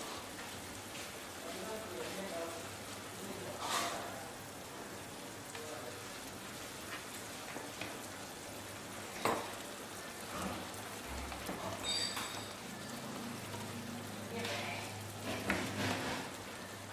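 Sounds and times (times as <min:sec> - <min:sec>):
curry bubbling in a pan: 0:00.0 - 0:16.9.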